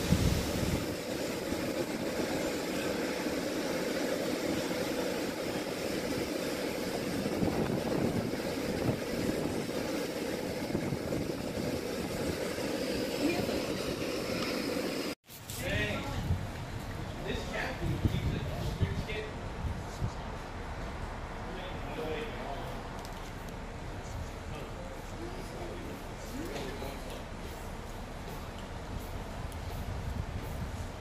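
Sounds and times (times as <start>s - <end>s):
wind buffeting microphone: 0.0s - 2.4s, 5.3s - 14.4s, 15.8s - 21.4s, 28.7s - 31.0s
low hum of ship machinery: 0.0s - 15.2s, 15.8s - 31.0s.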